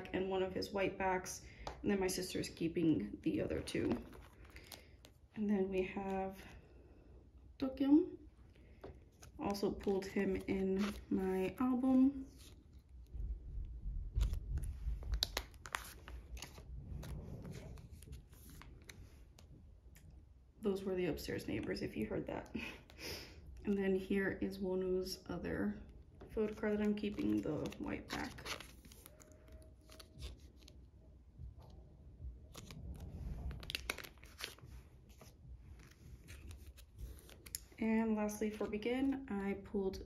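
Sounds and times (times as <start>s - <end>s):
plastic sleeve crinkling: 3.4s - 5.2s, 8.8s - 13.3s, 13.9s - 20.0s, 26.4s - 31.0s, 32.4s - 37.8s.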